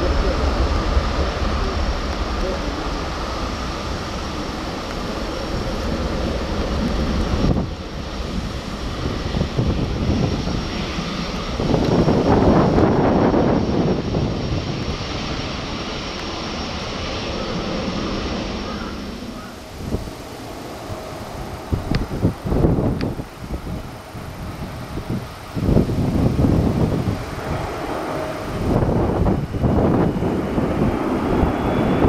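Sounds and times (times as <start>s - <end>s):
jet engines rumbling: 0.0s - 32.0s.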